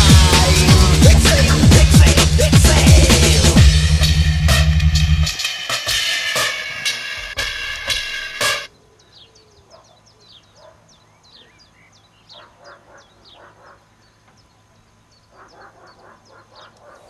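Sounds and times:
music with drum hits: 0.0 - 8.7
small birds chirping: 7.4 - 17.0.

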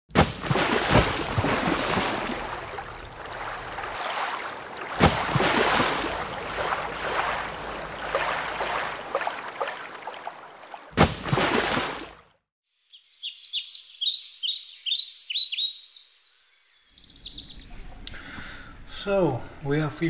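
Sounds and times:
rushing splashing water: 0.1 - 12.3.

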